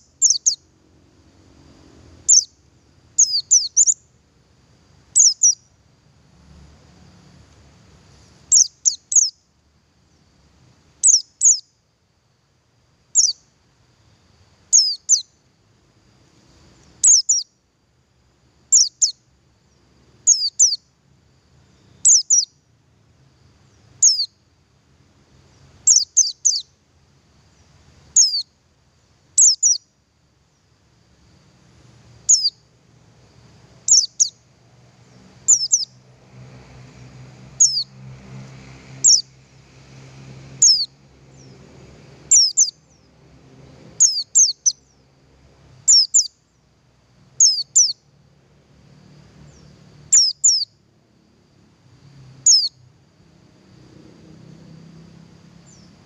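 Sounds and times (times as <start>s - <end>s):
bird chirping: 0.0s - 0.6s, 2.2s - 2.6s, 3.2s - 4.1s, 5.2s - 5.8s, 8.1s - 9.4s, 11.0s - 11.7s, 13.1s - 13.5s, 14.7s - 15.4s, 16.8s - 17.6s, 18.7s - 20.9s, 21.7s - 22.6s, 23.6s - 24.4s, 25.5s - 26.7s, 27.5s - 28.5s, 29.4s - 29.9s, 32.2s - 32.7s, 33.8s - 34.4s, 35.0s - 36.0s, 37.6s - 37.9s, 39.0s - 39.3s, 40.6s - 41.7s, 42.3s - 43.2s, 44.0s - 45.0s, 45.8s - 46.6s, 47.4s - 48.0s, 49.5s - 50.8s, 52.4s - 52.8s, 55.6s - 56.0s.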